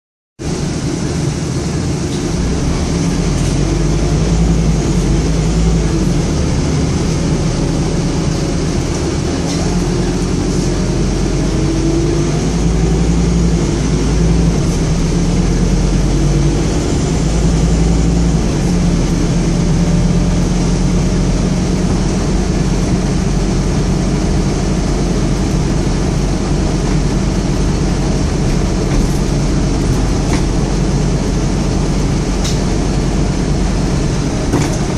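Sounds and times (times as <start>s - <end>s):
bus diesel engine drone: 0.4s - 34.9s
road noise: 0.4s - 34.9s
interior rattles: 34.0s - 34.9s.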